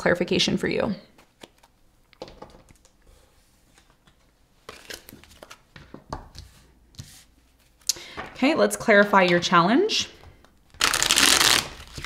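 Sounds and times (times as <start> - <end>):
cards rustling: 3.6 - 8.4, 10.3 - 12.0.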